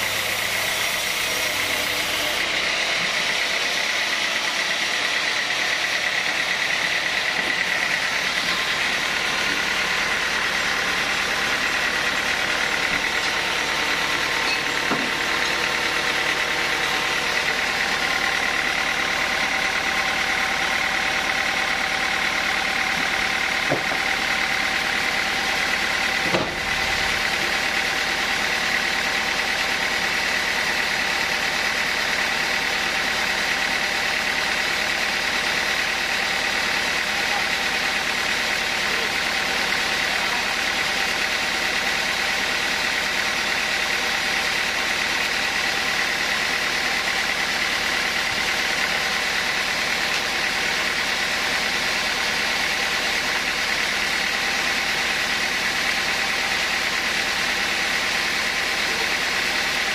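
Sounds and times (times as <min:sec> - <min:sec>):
band saw running with whine: 0:00.0 - 0:59.9
sharp knock: 0:26.3 - 0:26.6.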